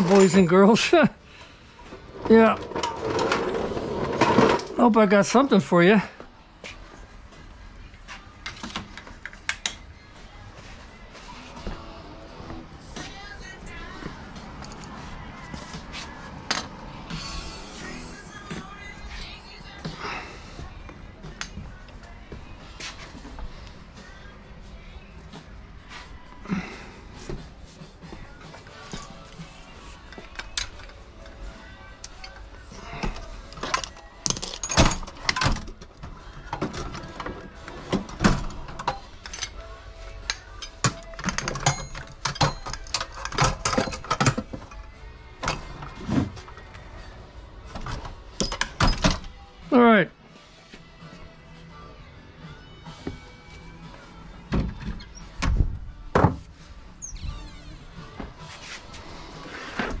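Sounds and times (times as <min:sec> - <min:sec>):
drawer rattling on slides: 0:02.1 - 0:04.8.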